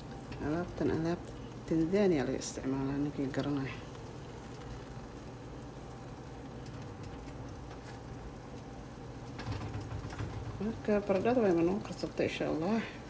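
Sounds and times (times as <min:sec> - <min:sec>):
faint frying sizzle: 0:00.0 - 0:13.0
steady low hum: 0:00.0 - 0:13.0.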